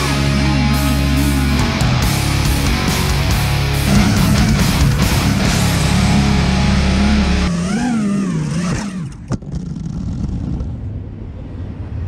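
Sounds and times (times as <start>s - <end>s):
drone motors wavering in pitch: 0.0s - 9.4s.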